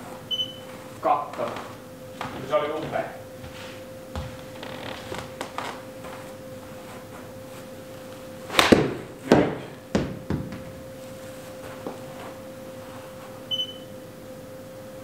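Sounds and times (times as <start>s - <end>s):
faint steady hum: 0.0s - 15.0s
ball knocking and bouncing: 8.6s - 10.9s
short electronic beep: 13.5s - 13.9s.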